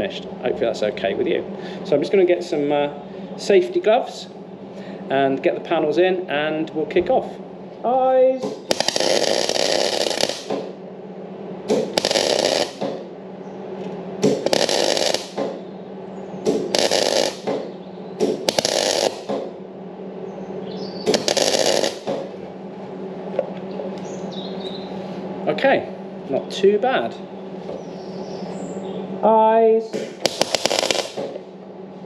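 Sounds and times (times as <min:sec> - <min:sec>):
welder humming: 0:07.9 - 0:10.8, 0:11.7 - 0:13.1, 0:13.8 - 0:15.8, 0:16.4 - 0:19.6, 0:20.7 - 0:22.4, 0:29.2 - 0:31.5
welding arc crackle: 0:08.4 - 0:10.7, 0:11.7 - 0:13.0, 0:14.2 - 0:15.6, 0:16.5 - 0:17.6, 0:18.2 - 0:19.3, 0:21.1 - 0:22.3, 0:30.0 - 0:31.4.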